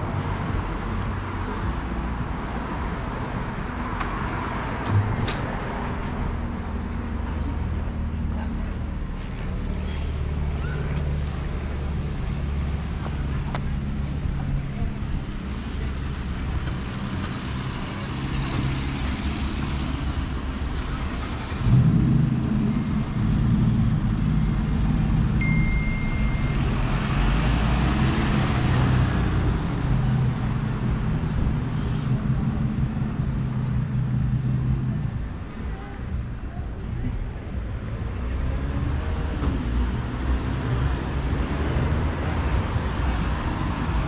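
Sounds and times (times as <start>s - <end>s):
heavy vehicle engine running: 4.8s - 37.8s.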